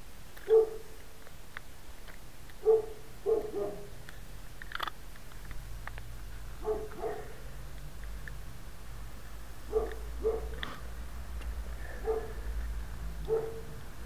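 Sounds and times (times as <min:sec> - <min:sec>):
dog barking: 0:00.4 - 0:01.0, 0:02.6 - 0:03.9, 0:06.6 - 0:07.4, 0:09.7 - 0:10.6, 0:12.0 - 0:12.4, 0:13.2 - 0:13.8.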